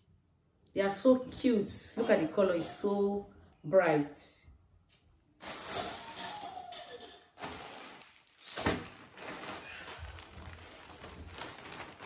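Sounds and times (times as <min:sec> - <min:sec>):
plastic bag rustling: 0:05.4 - 0:12.0.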